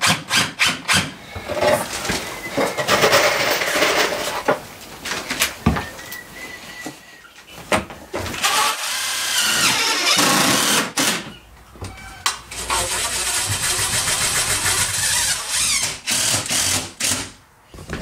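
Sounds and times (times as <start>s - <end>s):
power drill running: 8.4s - 11.2s, 12.6s - 17.3s.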